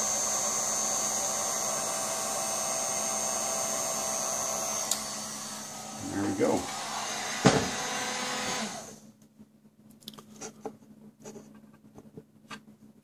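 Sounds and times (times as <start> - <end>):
hot-air blower running: 0.0 - 9.1.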